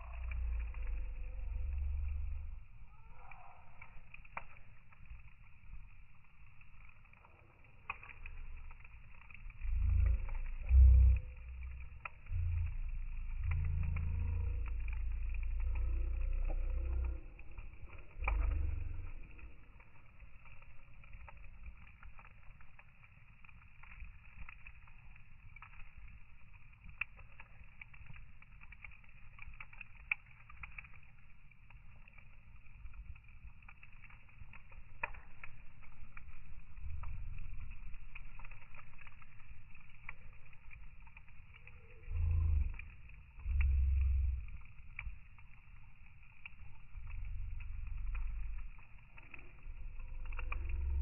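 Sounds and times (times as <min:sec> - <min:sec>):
heavy low rumbles: 0:00.0 - 0:02.8, 0:08.3 - 0:19.8, 0:36.6 - 0:38.4, 0:41.9 - 0:45.3, 0:46.7 - 0:51.0
wood fire crackling and popping: 0:00.0 - 0:51.0.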